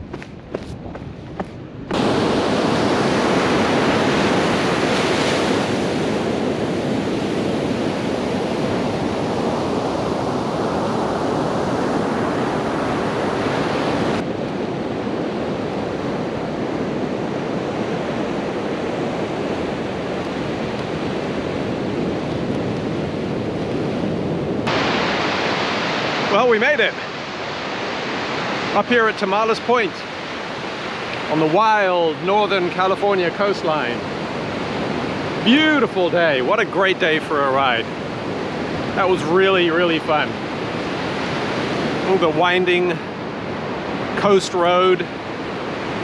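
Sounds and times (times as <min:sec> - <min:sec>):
ocean surf breaking: 0:00.0 - 0:46.0.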